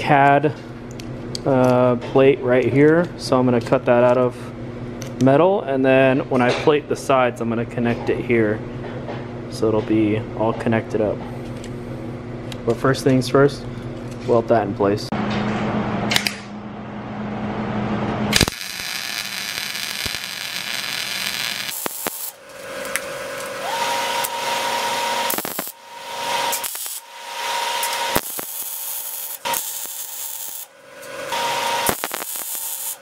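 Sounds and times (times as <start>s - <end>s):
welder crackling hiss: 18.4s - 33.0s.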